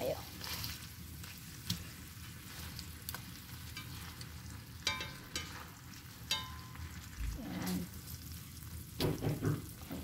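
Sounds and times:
steaks sizzling in a pan: 0.0 - 10.0
tongs clicking against pan: 1.6 - 1.9, 2.8 - 7.2.

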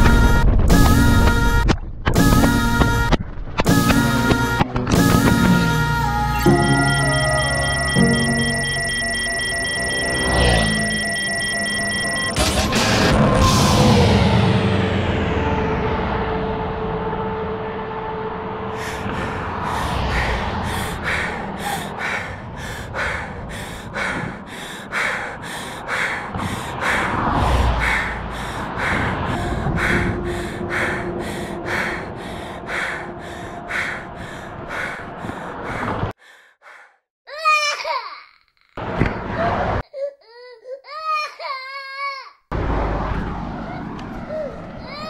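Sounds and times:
steady low rumble: 11.1 - 36.1.

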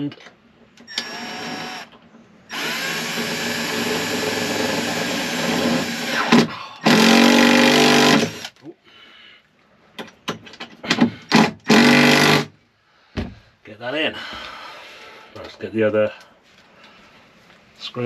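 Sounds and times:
impact driver driving screws: 0.9 - 8.6, 10.9 - 12.5.

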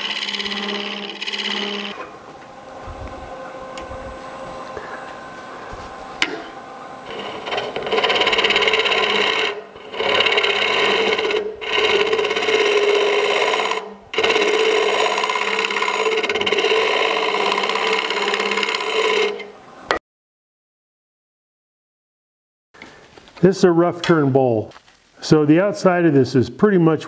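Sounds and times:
scraper scraping wood: 0.0 - 2.0, 5.7 - 19.5
wood lathe humming: 0.0 - 20.0.

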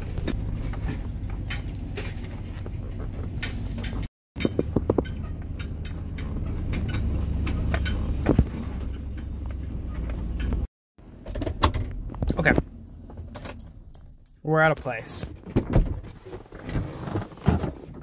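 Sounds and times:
rattles and knocks from bumps: 0.0 - 14.3
vehicle engine and road rumble: 0.0 - 18.0.

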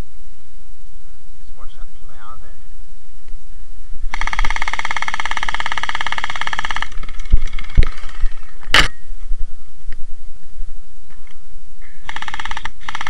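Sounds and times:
gel blaster full-auto buzz: 4.1 - 8.9, 12.0 - 13.0.

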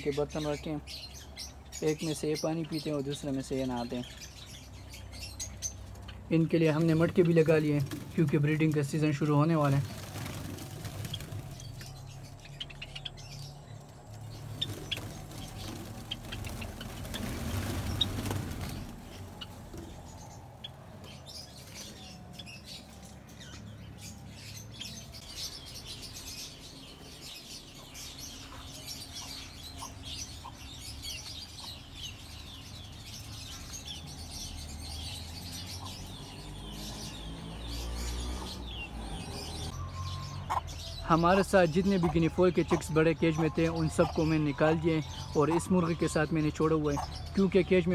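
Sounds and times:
sparrows chirping: 0.0 - 47.9
wings fluttering: 6.7 - 12.6, 14.2 - 23.0.

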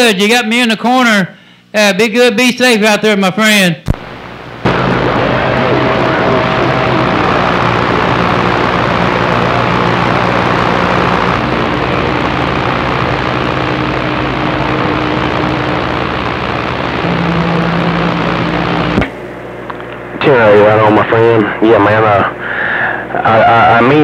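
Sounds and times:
low hum: 3.9 - 23.8
loud radio static: 3.9 - 24.0.

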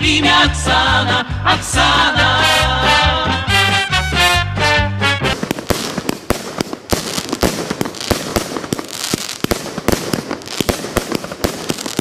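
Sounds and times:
fireworks crackling: 3.5 - 12.0
fireworks bangs: 3.6 - 12.0.

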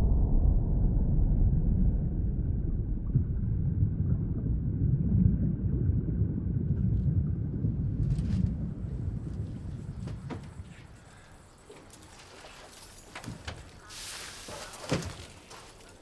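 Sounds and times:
deep low explosion rumble: 0.0 - 11.6.

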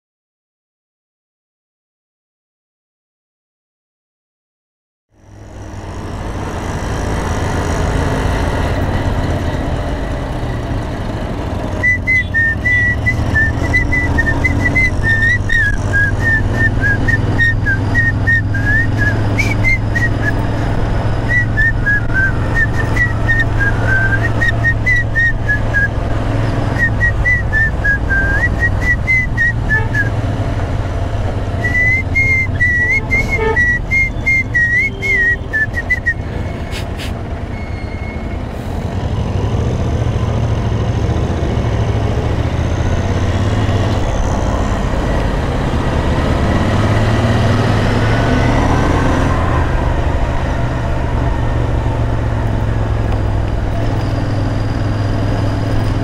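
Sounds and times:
whistled melody: 11.8 - 20.4, 21.3 - 25.9, 26.8 - 30.1, 31.6 - 36.7.

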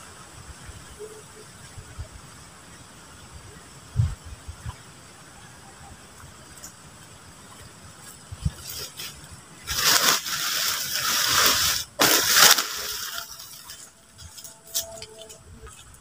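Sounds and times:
tarp rustling and crunching: 8.5 - 15.0.

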